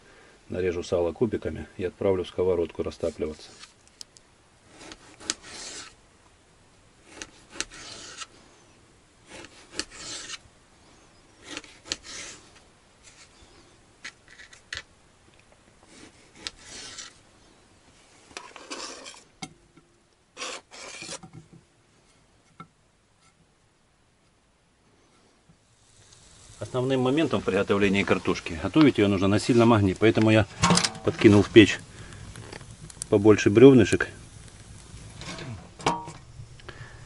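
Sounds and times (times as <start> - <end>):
knife slicing fat: 7.1 - 8.3, 9.3 - 10.4.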